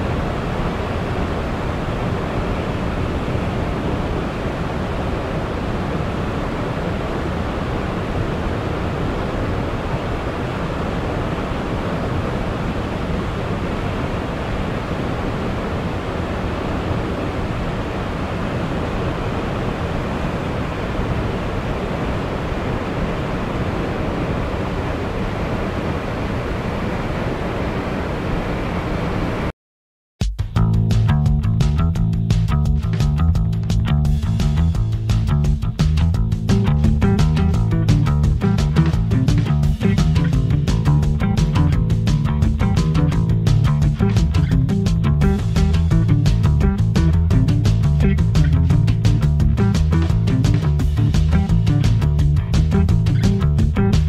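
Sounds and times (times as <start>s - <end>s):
waterfall rushing: 0.0s - 29.5s.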